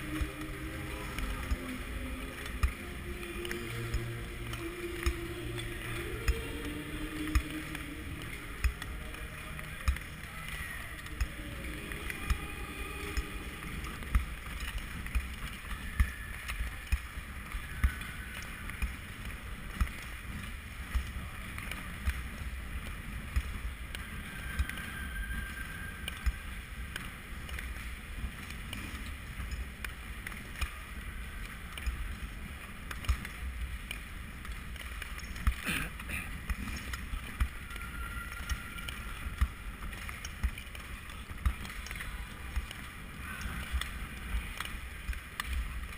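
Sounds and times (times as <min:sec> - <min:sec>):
skate blades scraping ice: 0:11.9 - 0:45.9.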